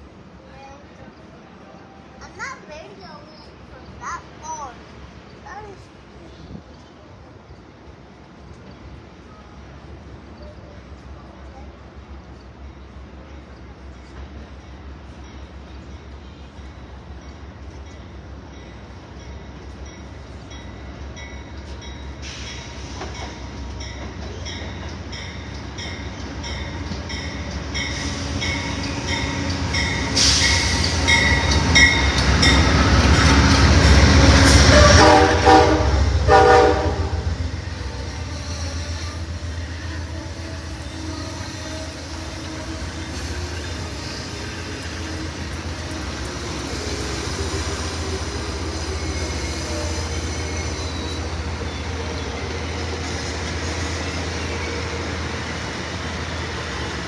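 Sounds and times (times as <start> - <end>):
train rumble: 0.0 - 57.0
train wheel clatter: 19.5 - 35.6
locomotive horn blasts: 34.3 - 37.4.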